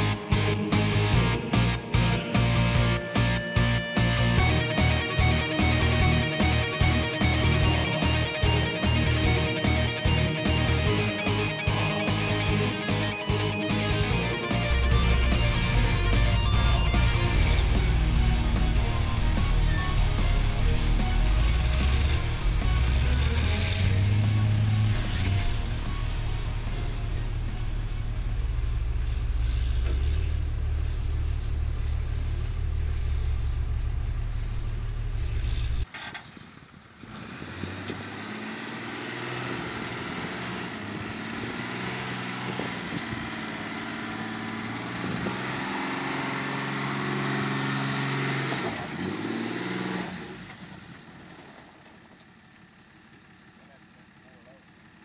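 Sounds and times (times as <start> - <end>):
heavy low rumble: 0.0 - 35.8
truck engine revving hard: 0.0 - 35.8, 37.0 - 50.5.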